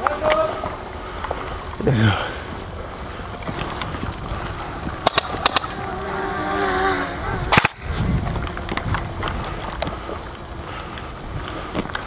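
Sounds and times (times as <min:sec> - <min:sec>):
airsoft gun shot: 0:07.5 - 0:08.0.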